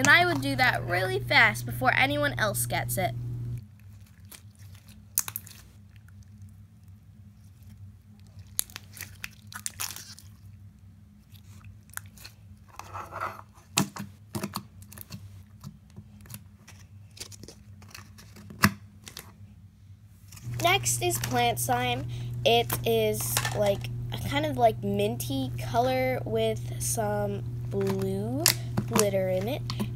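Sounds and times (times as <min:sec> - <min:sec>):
steady low hum: 0:00.0 - 0:04.1, 0:19.4 - 0:29.9.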